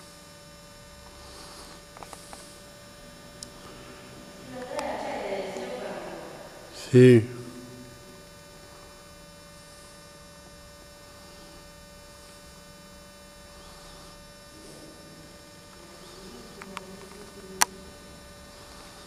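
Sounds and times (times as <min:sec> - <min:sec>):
steady electrical hum: 0:00.0 - 0:19.0
faint murmur of voices: 0:02.1 - 0:08.8, 0:13.6 - 0:19.0.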